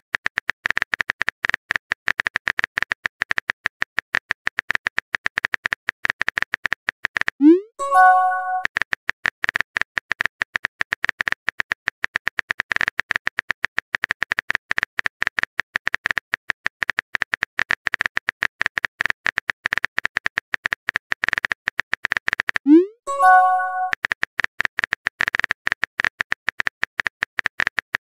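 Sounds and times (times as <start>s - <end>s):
keyboard typing clicks: 7.4s - 8.7s, 22.7s - 24.0s.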